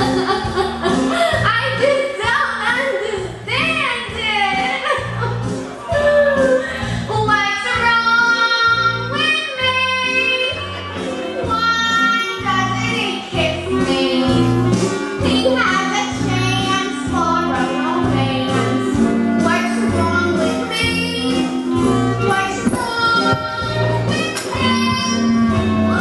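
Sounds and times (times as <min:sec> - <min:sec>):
live instrumental accompaniment: 0:00.0 - 0:26.0
woman singing: 0:05.9 - 0:10.6, 0:11.5 - 0:26.0.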